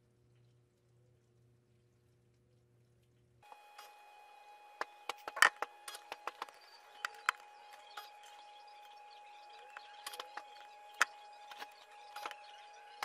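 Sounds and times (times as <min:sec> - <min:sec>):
faint low hum: 0:00.0 - 0:13.0
high steady whine: 0:03.4 - 0:13.0
sharp clicks: 0:04.8 - 0:13.0.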